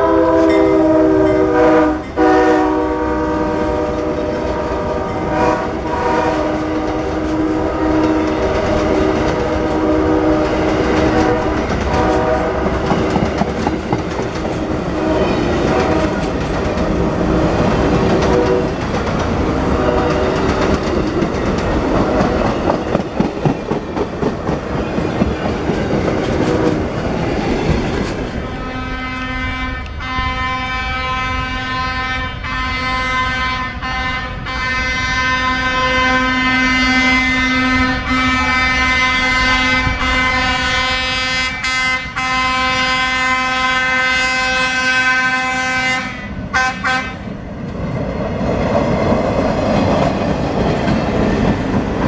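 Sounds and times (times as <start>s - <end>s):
train horn blasts: 0.0s - 13.2s, 14.6s - 16.4s, 18.0s - 18.8s, 19.5s - 20.6s, 28.4s - 47.3s
train wheels clattering: 4.2s - 30.8s, 47.7s - 52.0s.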